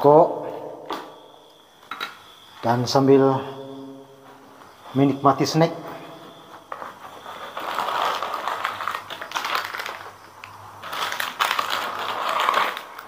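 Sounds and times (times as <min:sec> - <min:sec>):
plastic wrappers rustling: 0:06.7 - 0:13.0.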